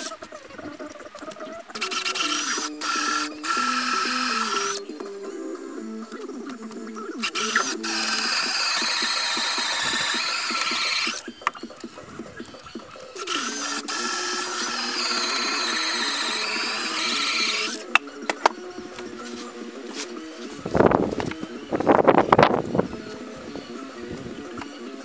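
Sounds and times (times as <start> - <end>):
power tool high whine: 1.8 - 5.7, 7.1 - 11.5, 12.4 - 18.0.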